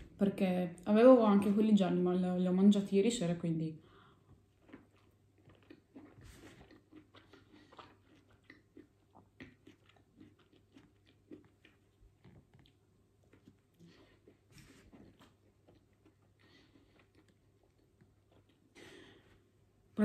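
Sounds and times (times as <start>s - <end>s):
person chewing sandwich: 3.9s - 19.9s.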